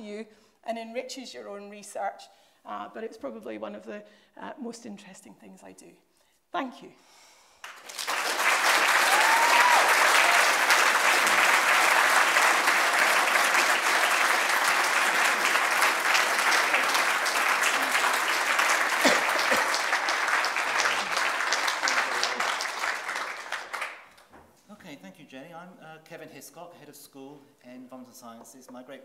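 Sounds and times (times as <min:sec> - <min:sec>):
audience applauding: 0:07.6 - 0:24.2.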